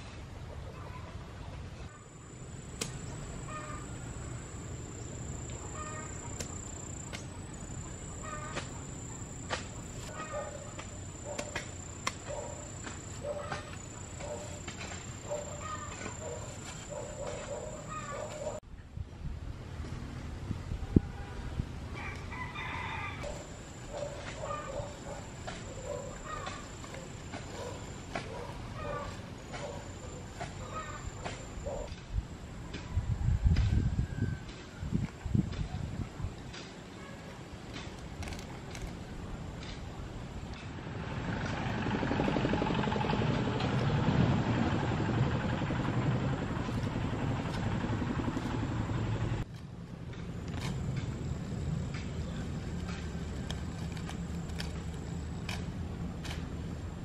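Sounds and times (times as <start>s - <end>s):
farm animals calling: 8.1s - 8.8s
engine running with fast rumble: 39.6s - 57.0s.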